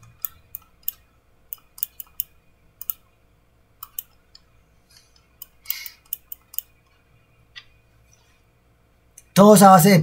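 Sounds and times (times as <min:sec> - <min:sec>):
computer mouse clicks: 0:00.0 - 0:03.1, 0:03.8 - 0:07.8.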